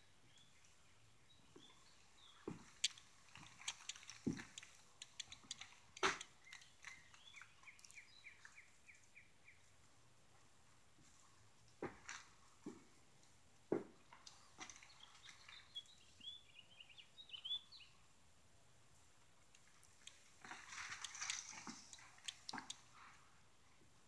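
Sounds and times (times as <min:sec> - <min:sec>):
small bird chirping: 0:01.3 - 0:09.6, 0:14.8 - 0:18.0, 0:19.9 - 0:23.0.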